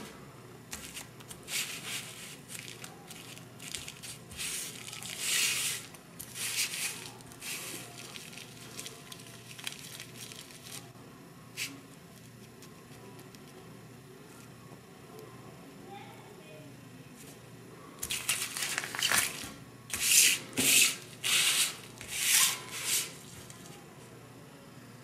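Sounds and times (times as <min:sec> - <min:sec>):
plastic bag crackle: 0:01.7 - 0:10.9, 0:18.1 - 0:19.5
plastic bag crinkling: 0:02.4 - 0:10.9, 0:18.1 - 0:19.6.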